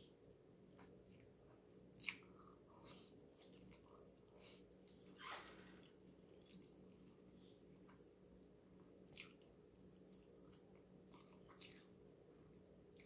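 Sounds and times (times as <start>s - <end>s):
low steady hum: 0.0s - 13.0s
soft wet mouth sounds: 1.1s - 5.2s, 9.0s - 12.0s
person chewing noodles: 1.9s - 5.2s, 9.0s - 12.0s.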